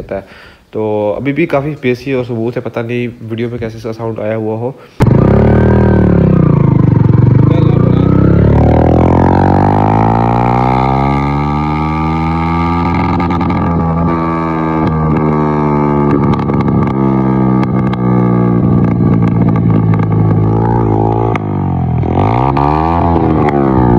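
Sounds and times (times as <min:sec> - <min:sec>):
motorcycle engine running: 0:05.0 - 0:23.9.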